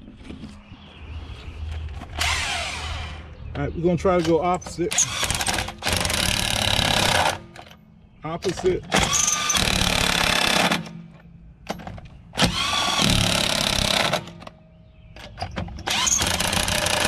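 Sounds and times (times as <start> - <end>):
impact wrench bursts: 4.9 - 7.5, 8.9 - 10.9, 12.4 - 14.4, 15.8 - 17.0.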